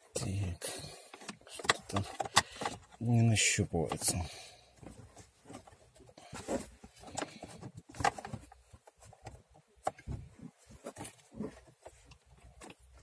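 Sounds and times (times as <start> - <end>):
plastic clicks and knocks: 1.1 - 3.0.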